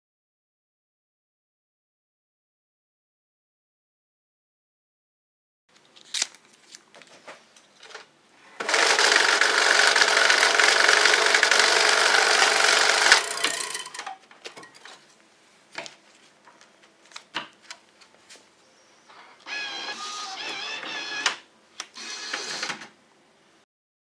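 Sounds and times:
banknote counter whirring: 0:08.6 - 0:14.2, 0:19.4 - 0:21.4.

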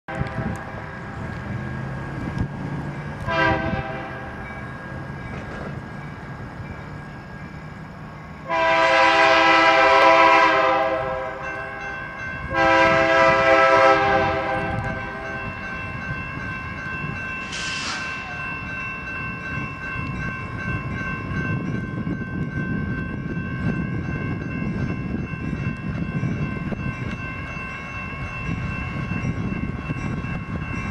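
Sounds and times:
locomotive air horn blasts: 0:03.2 - 0:04.3, 0:08.4 - 0:11.5, 0:12.5 - 0:15.3.

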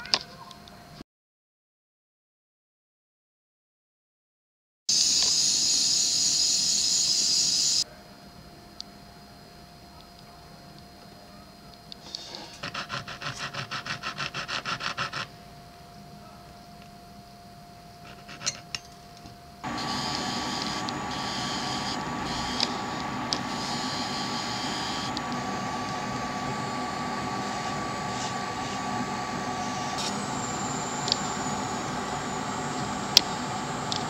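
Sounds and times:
rotary polishing tool whine: 0:04.9 - 0:07.8, 0:19.6 - 0:34.0.

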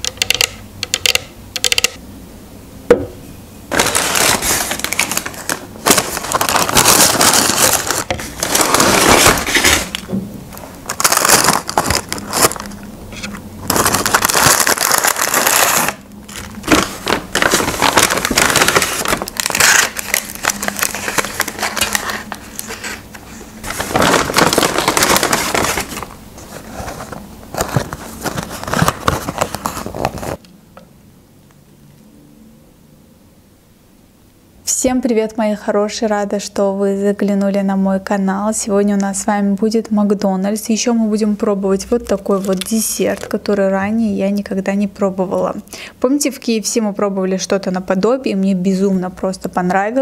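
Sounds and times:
paper bags and boxes crinkling: 0:03.7 - 0:12.8, 0:13.6 - 0:30.4.

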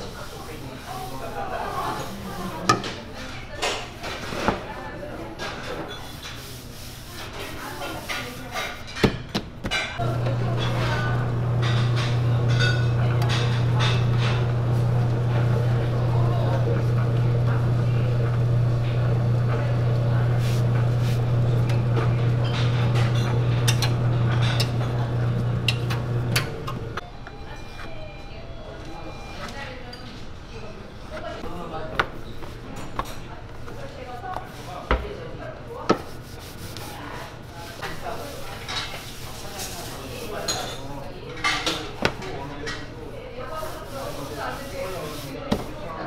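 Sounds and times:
dishes clinking and knocking: 0:08.5 - 0:14.8, 0:21.6 - 0:27.0
dough machine motor humming: 0:10.0 - 0:27.4
indistinct voices: 0:10.0 - 0:29.4.

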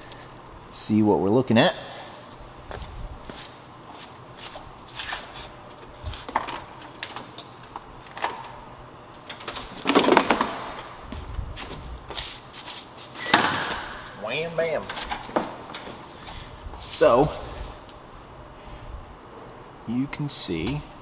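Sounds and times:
footsteps on concrete floor: 0:02.2 - 0:06.7, 0:10.7 - 0:14.1, 0:14.9 - 0:17.4.

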